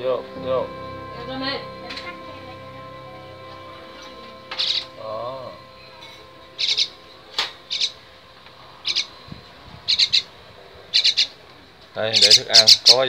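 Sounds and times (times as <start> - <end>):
bird giving harsh squawks: 7.7 - 8.0, 10.9 - 11.4, 12.1 - 13.0.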